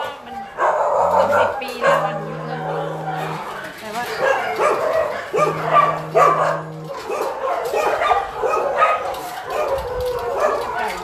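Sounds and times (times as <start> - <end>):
dogs barking and yipping: 0.0 - 11.0.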